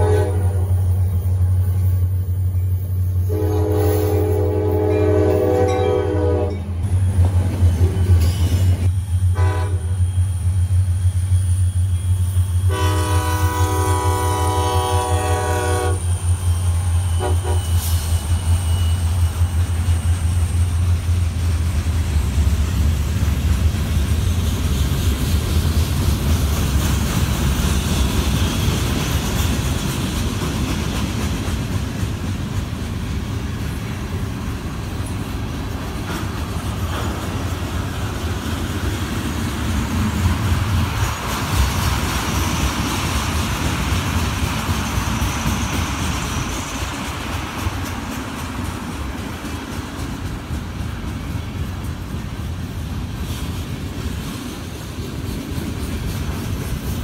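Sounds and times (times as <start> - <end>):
locomotive horn blasts: 0.0 - 0.9, 3.3 - 6.8, 9.3 - 10.0, 12.7 - 16.2, 17.2 - 17.8
diesel locomotive rumble: 0.0 - 57.0
rail cars clattering: 0.0 - 57.0.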